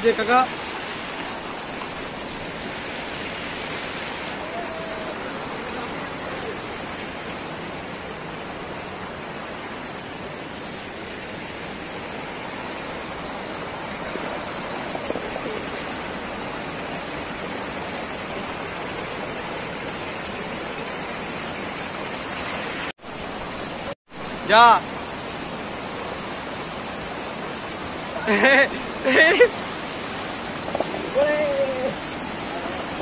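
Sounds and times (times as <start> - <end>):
river water rushing over rocks: 0.0 - 33.0.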